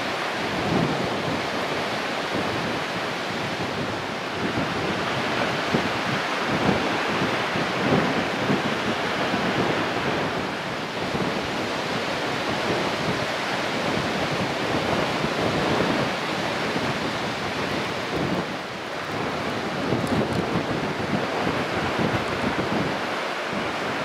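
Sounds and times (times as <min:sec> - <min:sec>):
strong wind on microphone: 0:00.0 - 0:24.0.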